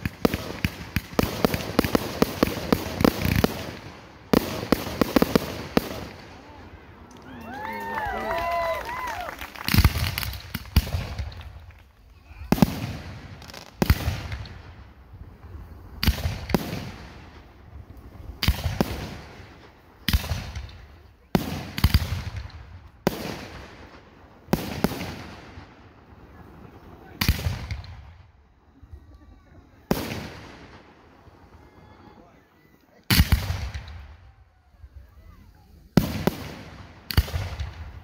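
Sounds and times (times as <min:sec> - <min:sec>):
firework shells bursting: 0:08.3 - 0:14.6.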